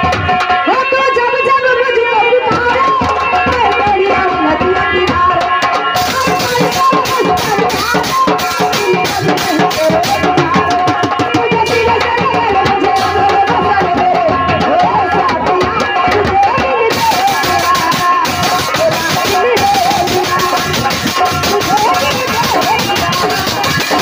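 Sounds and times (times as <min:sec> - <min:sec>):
fast hand drum rhythm: 0:02.5 - 0:24.0
held melodic instrument line: 0:05.7 - 0:24.0
crisp high drum strokes: 0:06.0 - 0:16.3, 0:16.9 - 0:24.0.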